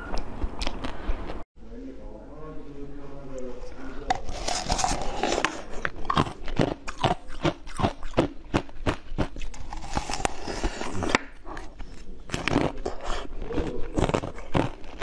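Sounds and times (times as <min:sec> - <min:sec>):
teeth crunching ice: 0:04.2 - 0:15.0.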